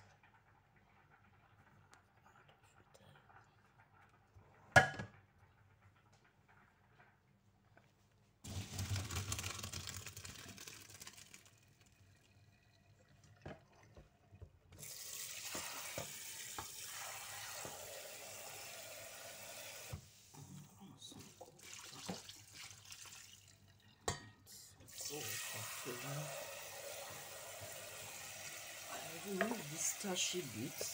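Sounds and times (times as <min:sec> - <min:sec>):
tap water gushing into sink: 0:08.4 - 0:24.0, 0:24.8 - 0:30.9.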